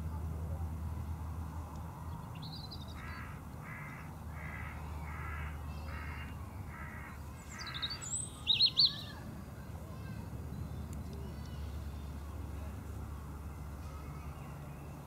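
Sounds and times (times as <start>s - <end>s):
bird harsh calls: 2.9s - 9.2s.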